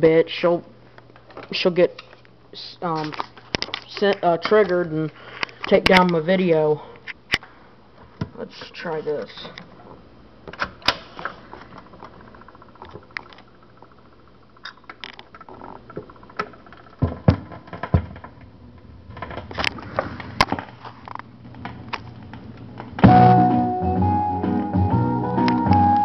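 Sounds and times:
low hum: 11.5s - 20.0s
guitar music from speakers: 23.0s - 26.0s
vinyl pops and crackle: 24.5s - 26.0s.

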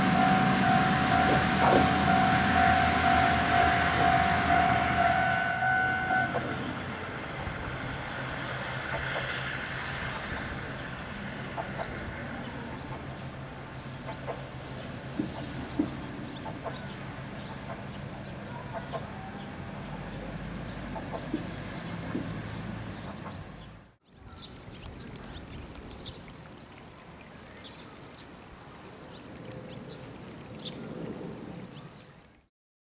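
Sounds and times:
tyres knocking on rails: 0.0s - 7.0s, 14.1s - 17.9s, 19.9s - 23.5s
low engine hum: 0.0s - 24.0s
birds chirping: 0.0s - 28.5s.

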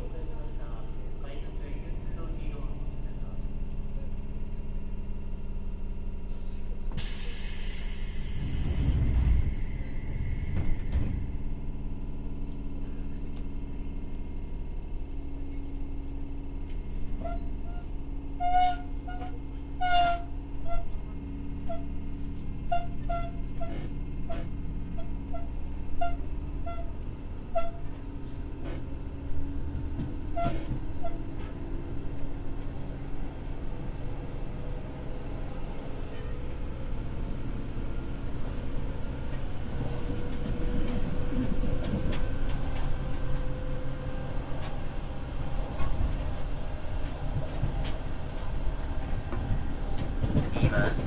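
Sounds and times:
electric train motors humming: 0.0s - 51.0s
wheels clicking on track: 39.2s - 51.0s.

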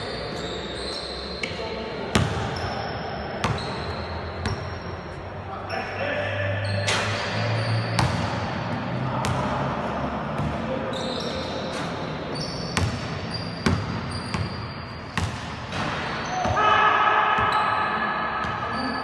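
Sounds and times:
shoe squeaks: 0.0s - 1.7s, 2.4s - 6.0s, 6.6s - 8.6s, 10.8s - 15.3s, 18.6s - 19.0s.

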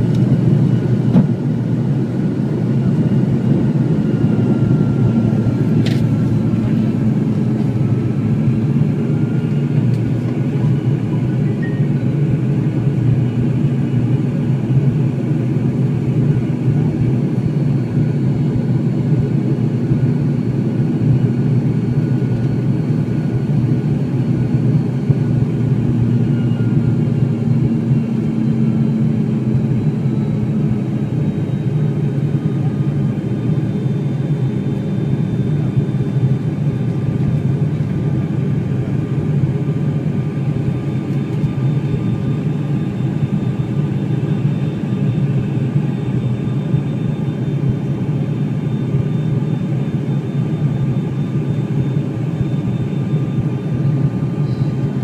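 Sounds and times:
airliner engines droning: 0.0s - 55.0s
faint higher hum: 53.5s - 55.0s.

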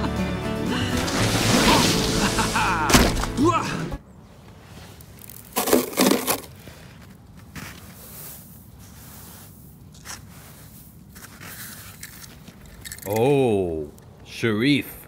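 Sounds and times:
snow crunching and scraping: 0.7s - 3.4s, 4.2s - 12.7s.

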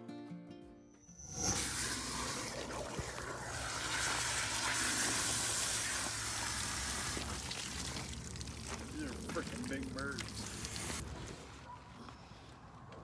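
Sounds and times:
hose nozzle spraying water: 1.3s - 11.0s.

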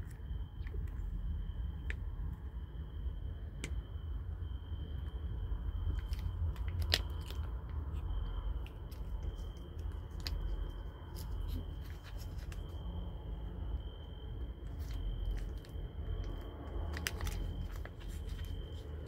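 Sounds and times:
foil pouch crinkling: 5.9s - 13.0s, 14.6s - 19.0s
kitten licking and chewing food: 5.9s - 13.6s.

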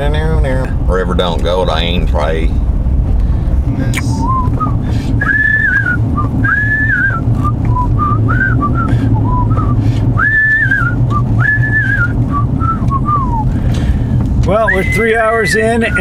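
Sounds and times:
car cabin drone: 0.0s - 16.0s
man whistling a tune: 4.1s - 13.6s, 14.6s - 16.0s.

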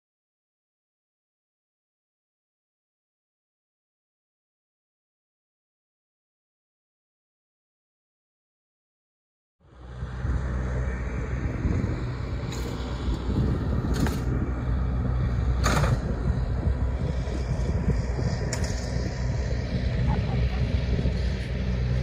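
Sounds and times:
wind on microphone: 10.0s - 22.0s.

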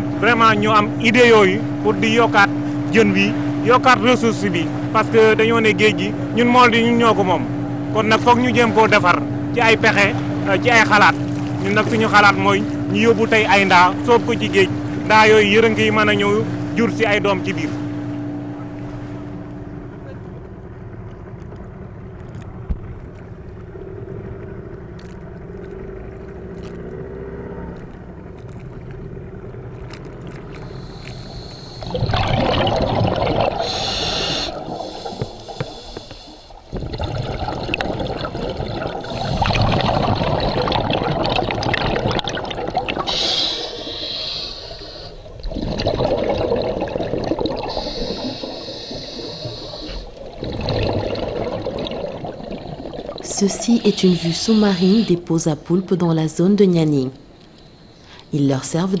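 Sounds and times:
underwater rumble: 0.0s - 59.0s
exhaled bubbles gurgling: 22.4s - 55.8s, 57.2s - 59.0s
scuba regulator breathing hiss: 30.7s - 31.9s, 33.6s - 36.6s, 43.0s - 45.4s, 47.6s - 50.2s, 53.6s - 55.2s.

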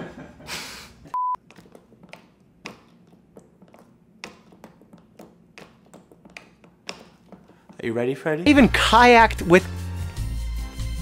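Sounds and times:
censor bleep: 1.1s - 1.4s.

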